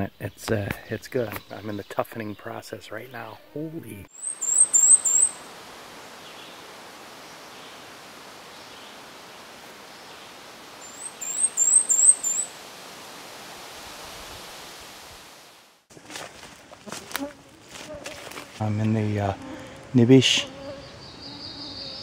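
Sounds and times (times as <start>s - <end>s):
steady background hiss: 0.0s - 22.0s
warbler singing high thin notes: 4.2s - 5.4s, 10.8s - 12.5s.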